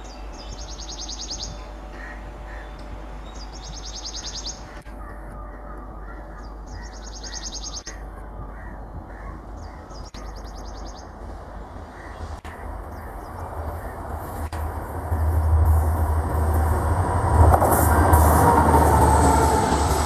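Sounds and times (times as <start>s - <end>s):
birds chirping: 0.0s - 14.2s
train low hum: 0.0s - 20.0s.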